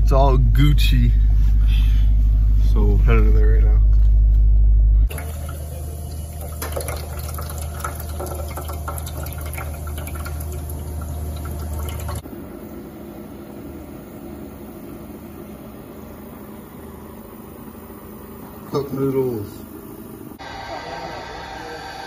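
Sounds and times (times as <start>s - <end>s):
steady low hum: 0.0s - 22.0s
water splashing into a plastic reservoir: 5.1s - 12.2s.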